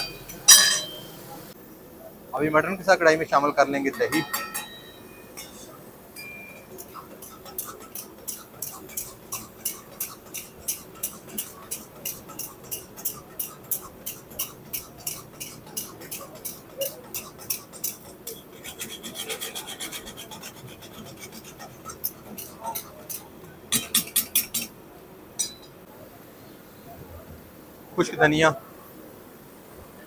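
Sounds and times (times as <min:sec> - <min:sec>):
spatula scraping a pan: 0:03.8 - 0:24.8.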